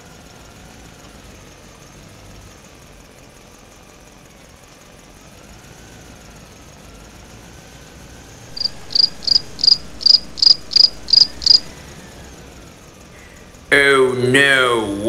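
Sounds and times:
faint background noise: 0:00.0 - 0:15.0
cricket chirping: 0:08.5 - 0:12.5.

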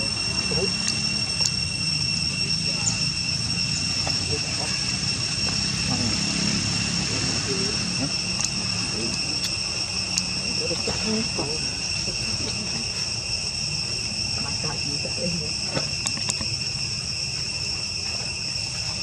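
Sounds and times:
insects droning: 0:00.0 - 0:19.0
faint clicks and chirps: 0:00.8 - 0:01.6, 0:08.4 - 0:08.6.

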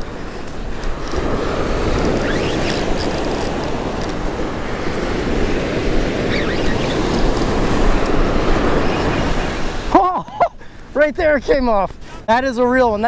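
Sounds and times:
wind rumbling on microphone: 0:00.0 - 0:10.0
surf breaking on beach: 0:00.0 - 0:10.1
faint short squeaks: 0:02.0 - 0:03.6, 0:06.3 - 0:07.4.

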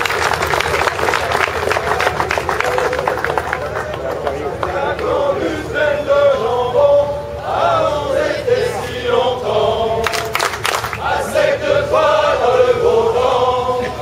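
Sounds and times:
men chanting: 0:04.7 - 0:14.0.

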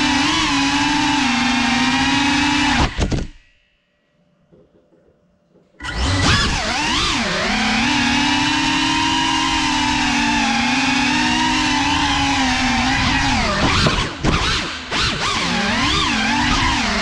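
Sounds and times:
drone motors whining: 0:00.0 - 0:03.4, 0:05.8 - 0:17.0
drone crashing to the floor: 0:02.8 - 0:03.5.

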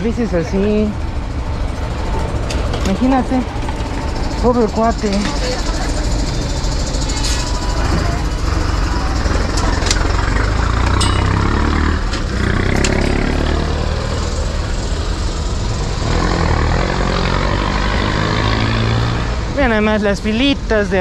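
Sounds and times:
street traffic: 0:00.0 - 0:21.0
vehicle engine rumbling: 0:00.0 - 0:21.0.

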